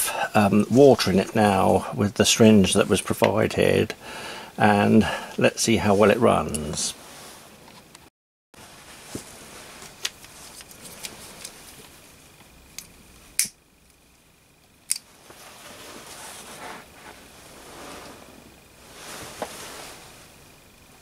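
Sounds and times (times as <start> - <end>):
lighter clicks: 12.8 - 13.6.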